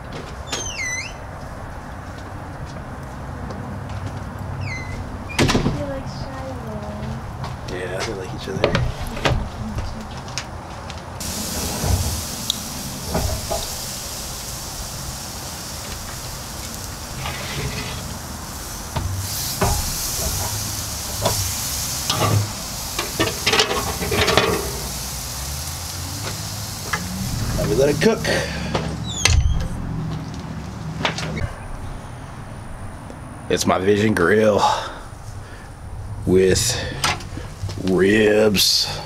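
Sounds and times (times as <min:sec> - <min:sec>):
ribs sizzling on grill: 0:11.2 - 0:29.0.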